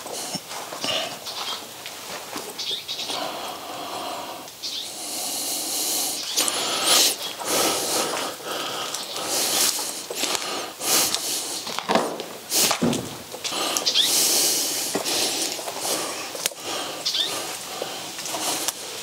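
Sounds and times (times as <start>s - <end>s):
footsteps crunching on gritty floor: 0.0s - 3.0s, 6.3s - 19.0s
steady hiss: 0.0s - 19.0s.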